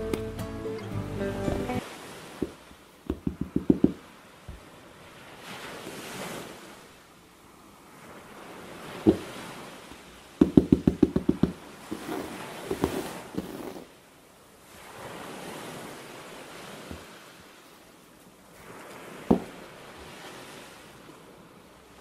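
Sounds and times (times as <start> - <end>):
ocean waves washing in: 0.9 - 22.0
sharp taps and clicks: 2.4 - 4.0
knock: 3.1 - 4.0, 10.4 - 11.6.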